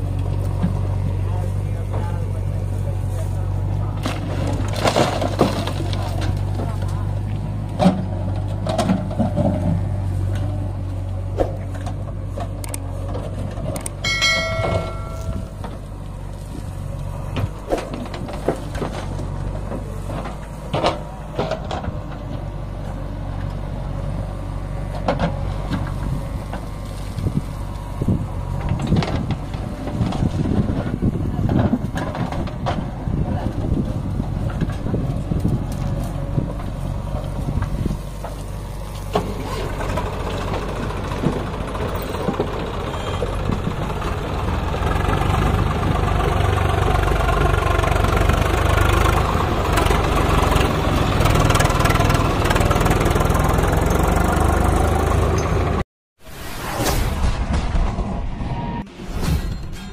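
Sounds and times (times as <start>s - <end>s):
diesel engines idling: 0.0s - 55.8s
knocks and clatter: 3.9s - 10.5s, 28.6s - 33.8s, 34.4s - 54.5s
short pitched tone: 14.0s - 15.6s.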